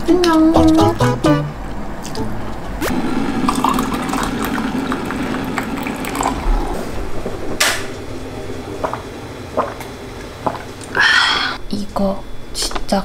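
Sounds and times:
water pouring into a glass: 3.0s - 6.8s.

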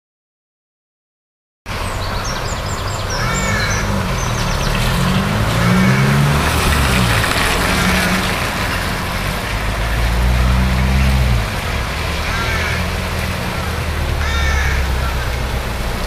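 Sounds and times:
passing vehicle engine hum: 1.7s - 16.0s
river rushing in flood: 1.7s - 16.0s
bird chirps: 1.8s - 5.2s.

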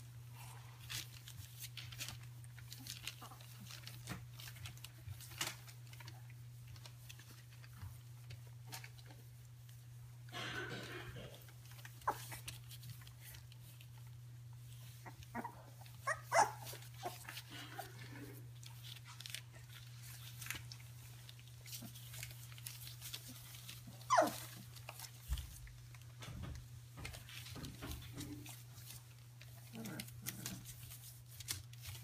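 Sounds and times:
puppies yipping and squeaking: 14.8s - 18.1s, 23.0s - 25.1s
puppy yelp: 15.0s - 17.3s, 24.0s - 24.6s.

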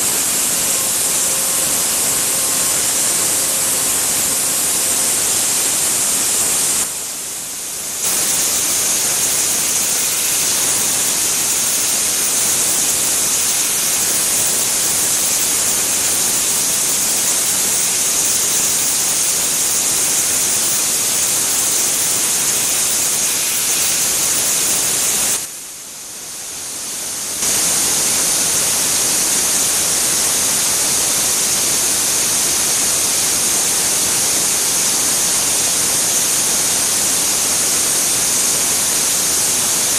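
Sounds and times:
milling machine cutting steel: 0.0s - 6.9s, 8.0s - 25.5s
air blowing from nozzles: 8.0s - 25.5s.

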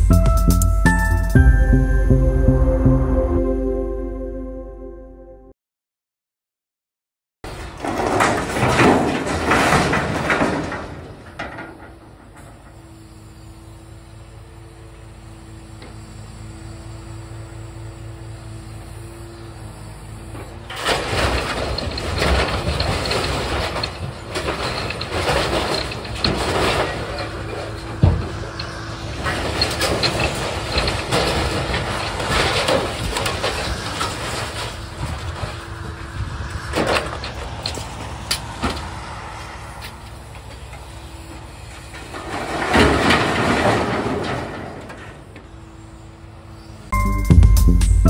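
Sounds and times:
scrap metal clattering and scraping: 7.5s - 12.8s, 20.3s - 45.5s
truck engine and hydraulics hum: 7.5s - 48.0s.

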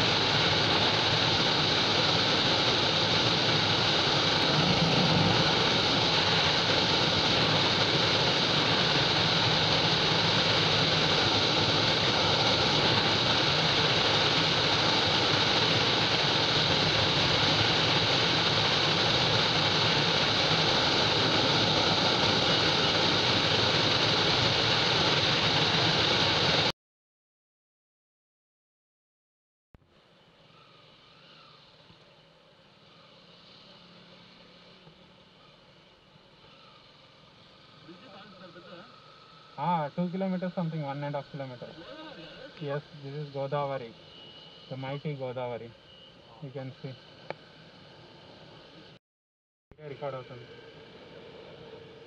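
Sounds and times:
motorcycle engine: 0.0s - 25.8s
wind rushing: 1.1s - 26.4s.

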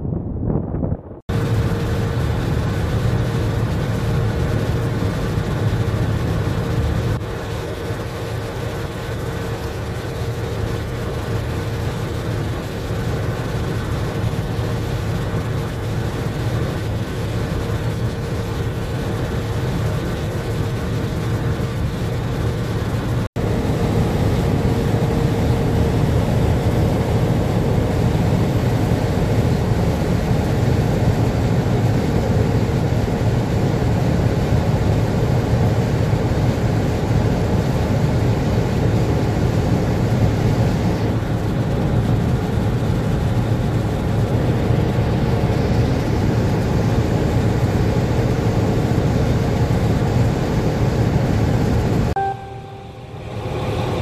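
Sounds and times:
boat diesel engine drone: 0.0s - 54.0s
water and wind rushing: 0.0s - 54.0s
faint steady hum: 46.9s - 54.0s.

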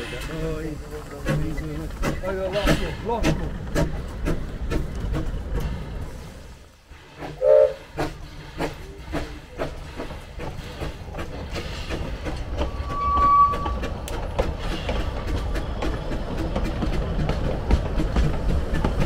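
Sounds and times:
locomotive rumble: 0.0s - 19.0s
wheels clicking on rails: 0.0s - 19.0s
steam locomotive whistle blast: 7.4s - 7.8s, 12.8s - 13.8s.

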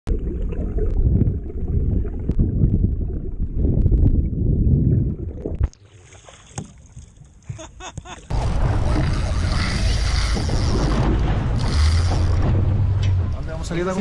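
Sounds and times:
water rushing underwater: 0.1s - 6.2s, 8.3s - 12.9s
quiet water surface sound: 0.1s - 14.0s.

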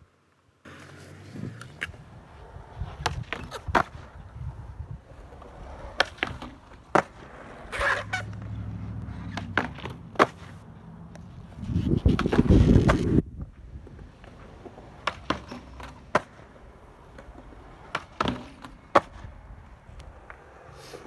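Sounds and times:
skateboard wheels rolling on concrete: 0.0s - 21.0s
skateboard clacking on ground: 0.7s - 4.4s, 5.1s - 13.2s, 13.8s - 20.7s
skateboard rough rumble on ledge: 0.7s - 10.6s, 11.5s - 19.4s.

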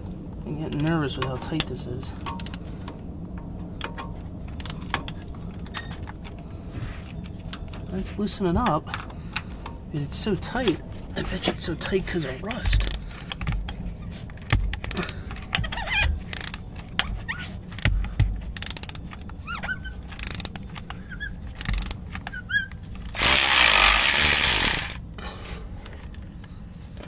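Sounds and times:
ratchet clicking: 0.7s - 1.0s, 1.6s - 2.6s, 4.6s - 5.0s, 12.6s - 13.4s, 14.4s - 16.6s, 18.6s - 19.2s, 20.1s - 20.9s, 21.5s - 22.1s, 23.1s - 25.0s
cordless ratchet spinning: 2.3s - 2.6s, 12.7s - 13.0s, 14.4s - 16.6s, 18.6s - 19.1s, 20.1s - 20.6s, 21.6s - 22.0s, 23.1s - 25.0s.

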